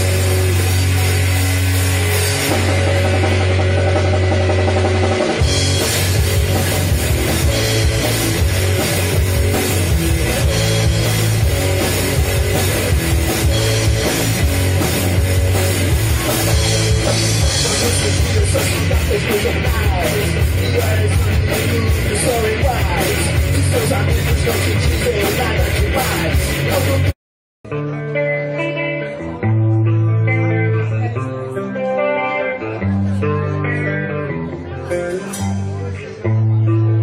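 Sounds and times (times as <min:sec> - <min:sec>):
drum kit with cymbals: 0:00.0 - 0:27.1, 0:35.1 - 0:35.9
electric bass: 0:00.0 - 0:37.0
electric guitar: 0:00.0 - 0:37.0.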